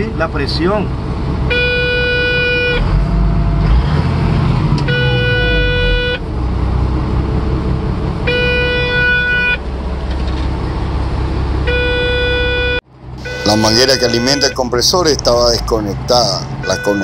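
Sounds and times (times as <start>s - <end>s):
diesel engine running: 0.0s - 17.0s
warning alarm beeping: 1.5s - 3.6s, 4.8s - 6.2s, 11.7s - 14.9s, 16.6s - 17.0s.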